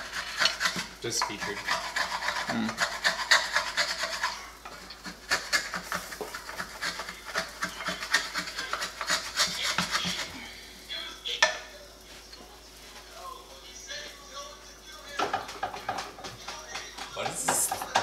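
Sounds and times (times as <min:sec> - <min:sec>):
rasping scraping strokes: 0:00.0 - 0:10.5.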